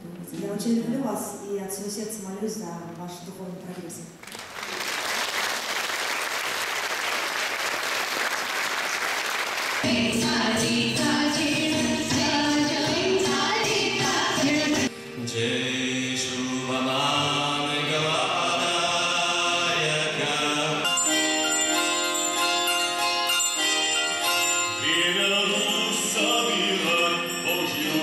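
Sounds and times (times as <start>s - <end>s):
chant-like singing: 9.8s - 20.9s.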